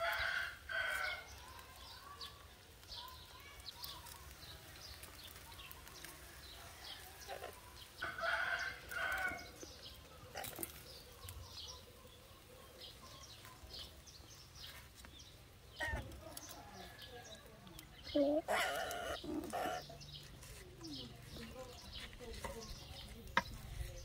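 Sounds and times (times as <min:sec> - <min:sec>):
rooster crowing: 0:00.0 - 0:01.3, 0:08.0 - 0:09.5
small birds chirping: 0:00.0 - 0:24.0.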